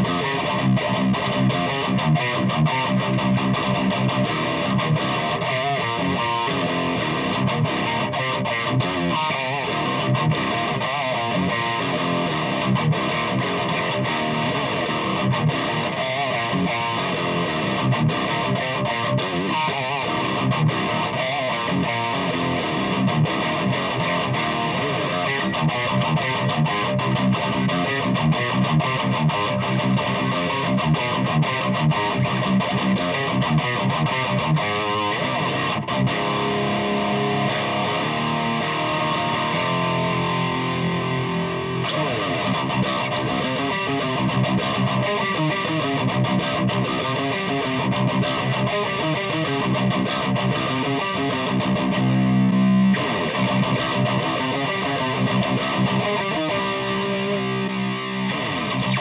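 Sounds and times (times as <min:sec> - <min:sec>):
distorted electric guitar riffing: 0:00.0 - 0:59.0.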